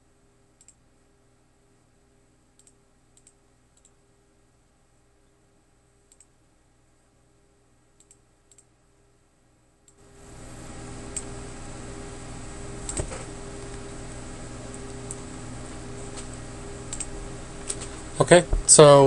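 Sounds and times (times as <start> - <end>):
computer mouse clicks: 0.6 - 0.8, 2.6 - 4.0, 6.1 - 6.3, 8.0 - 8.7, 12.8 - 13.9, 16.1 - 17.9
microphone hum and hiss: 10.1 - 19.0.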